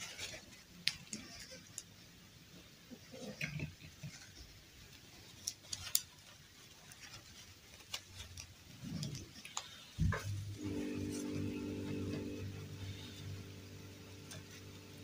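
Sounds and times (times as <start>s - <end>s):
cloth rustling: 4.1s - 15.0s.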